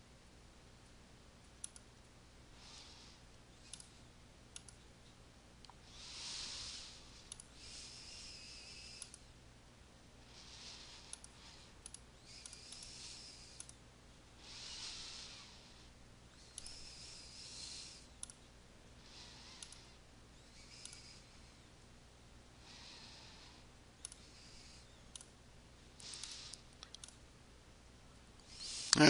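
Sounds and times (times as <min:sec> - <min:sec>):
computer mouse clicks: 0:01.6 - 0:01.9, 0:03.7 - 0:03.9, 0:04.5 - 0:04.8, 0:07.3 - 0:07.5, 0:08.8 - 0:09.3, 0:11.0 - 0:13.8, 0:16.4 - 0:17.2, 0:18.2 - 0:18.4, 0:19.5 - 0:19.9, 0:20.6 - 0:21.2, 0:24.0 - 0:24.3, 0:25.1 - 0:25.3, 0:26.0 - 0:27.2
soft breathing into microphone: 0:02.5 - 0:04.1, 0:05.8 - 0:09.3, 0:10.2 - 0:13.7, 0:14.4 - 0:18.2, 0:19.0 - 0:21.8, 0:22.6 - 0:25.1.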